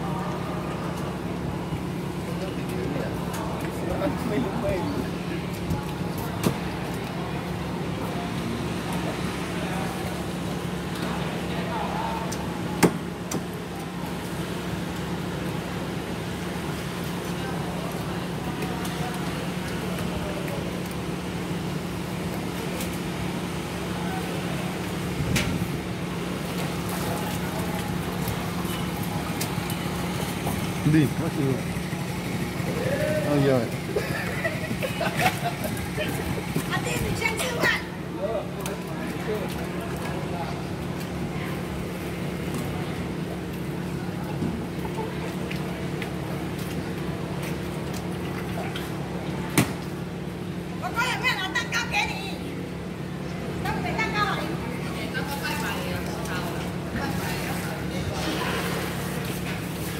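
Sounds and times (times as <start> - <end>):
boat engine droning: 0.0 - 59.9
engine idling: 25.8 - 37.2.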